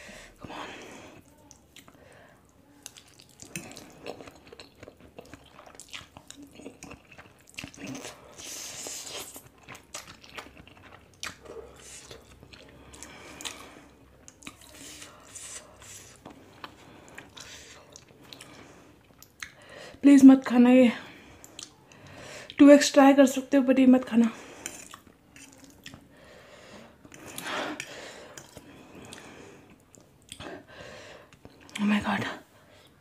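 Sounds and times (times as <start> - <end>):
wet chewing and lip smacks: 2.8 - 19.7, 21.4 - 22.6, 24.6 - 26.1, 27.0 - 30.6.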